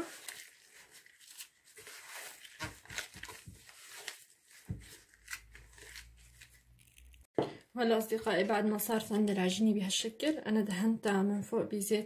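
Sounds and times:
dough squishing and tearing: 0:00.0 - 0:07.3.

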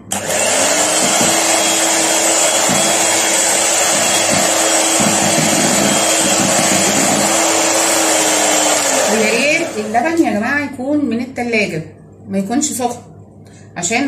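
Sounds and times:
electric hand mixer whipping: 0:00.0 - 0:10.4.

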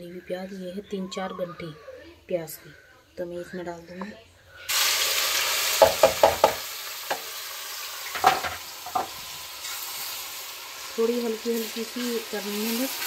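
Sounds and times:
onions sizzling in hot oil: 0:04.7 - 0:13.0
knocks: 0:05.8 - 0:06.6.

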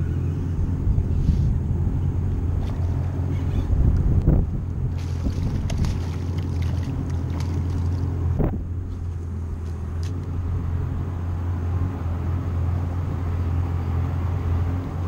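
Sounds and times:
low engine drone: 0:00.0 - 0:15.0
light water splashes: 0:04.8 - 0:08.5.

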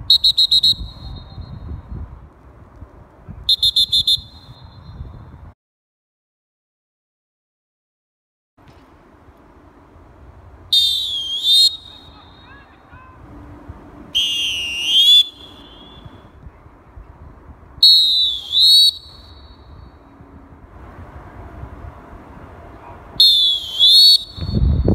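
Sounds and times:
shrill referee whistle blasts: 0:00.0 - 0:01.7, 0:03.5 - 0:05.1, 0:10.7 - 0:12.7, 0:14.2 - 0:16.2, 0:17.8 - 0:20.0, 0:23.2 - 0:24.9.

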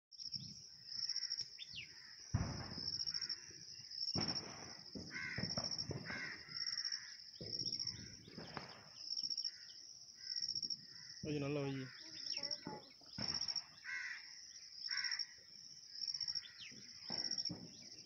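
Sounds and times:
crows cawing: 0:01.0 - 0:02.3, 0:03.0 - 0:03.6, 0:04.6 - 0:08.4, 0:09.4 - 0:12.9, 0:13.7 - 0:15.5, 0:16.2 - 0:17.6.

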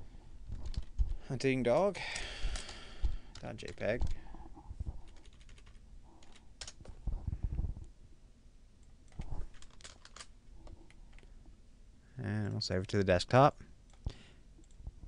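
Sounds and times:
keyboard keys tapping: 0:05.0 - 0:06.8.

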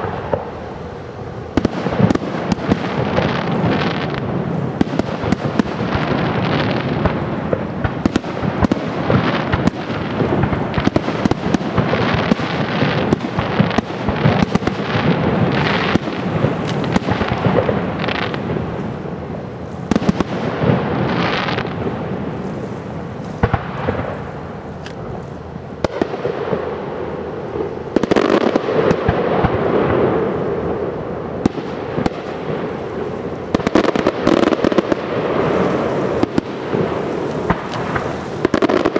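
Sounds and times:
rumbling crackling background: 0:00.0 - 0:38.9
firework shells bursting: 0:01.6 - 0:18.5, 0:33.5 - 0:38.9.

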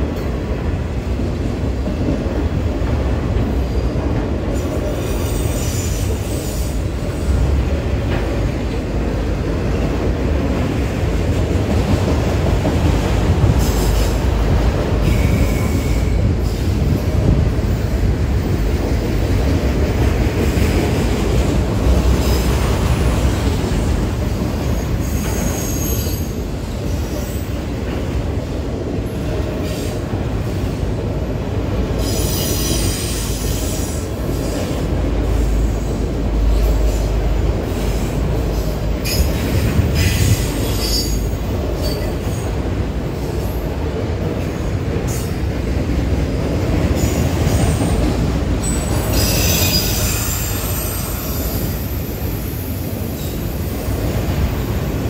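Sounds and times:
train wheels rumbling on rail: 0:00.0 - 0:55.0
wheel squeal and rattle: 0:48.6 - 0:51.6.

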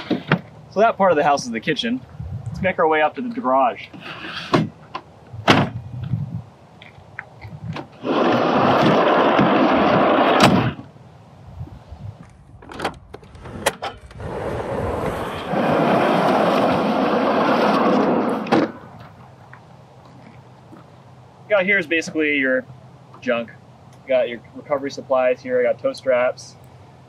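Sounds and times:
drawer rolling on slides: 0:08.0 - 0:10.7, 0:13.3 - 0:19.1.

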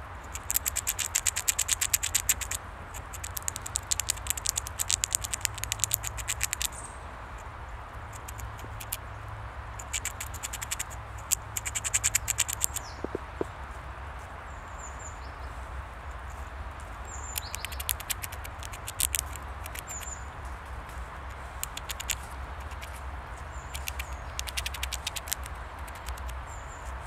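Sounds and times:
squirrel gnawing clicks: 0:00.2 - 0:06.8, 0:08.1 - 0:09.0, 0:09.8 - 0:13.5, 0:17.2 - 0:20.2, 0:21.2 - 0:27.0
steady low rumble: 0:01.9 - 0:14.4.

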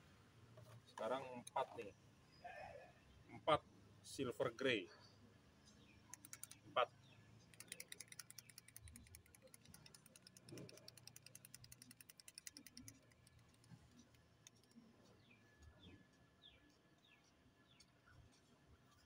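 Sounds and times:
small clicks of paint bottle: 0:06.1 - 0:06.7, 0:07.5 - 0:19.0.

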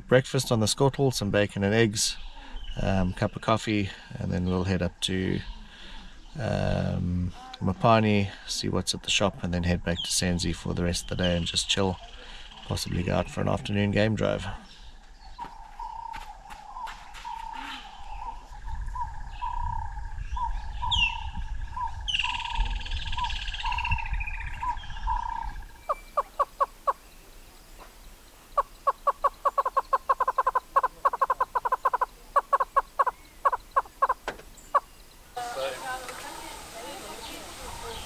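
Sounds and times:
hornbill hollow clucks: 0:15.4 - 0:18.5, 0:25.2 - 0:38.0.

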